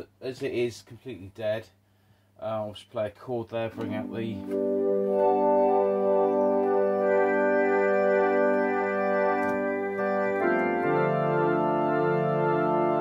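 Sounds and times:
combo organ chords: 3.6 - 13.0.

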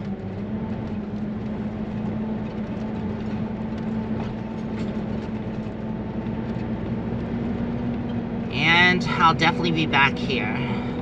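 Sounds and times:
engine hum: 0.0 - 11.0.

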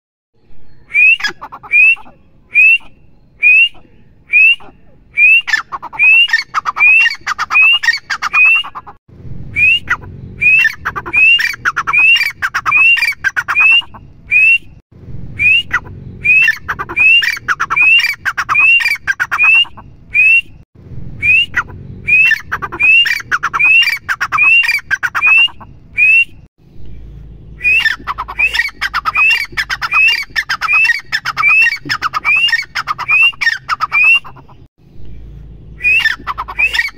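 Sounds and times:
francolin calling: 0.6 - 9.0.

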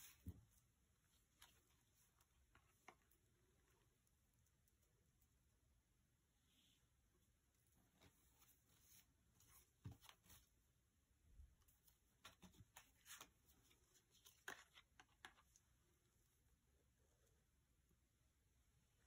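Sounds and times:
faint small clicks and taps: 0.2 - 5.4, 11.6 - 15.8.

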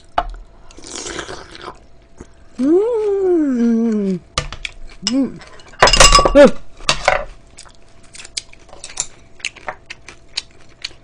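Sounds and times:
chewing with wet clicks: 7.5 - 11.0.

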